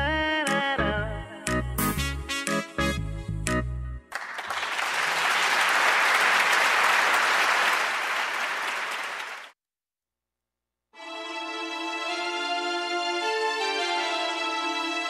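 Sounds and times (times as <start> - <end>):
applause: 4.1 - 9.6
soft music with sustained tones: 11.0 - 15.0.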